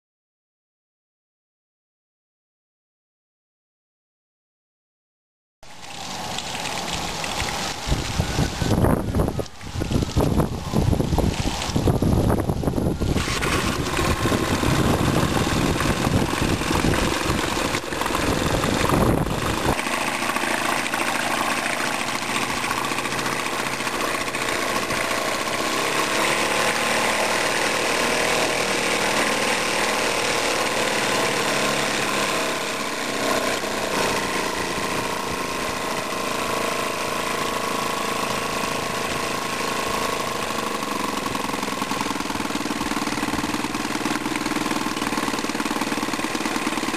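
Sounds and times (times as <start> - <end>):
small outboard engine idling: 5.7 - 46.9
wind rumble on microphone: 7.4 - 19.8.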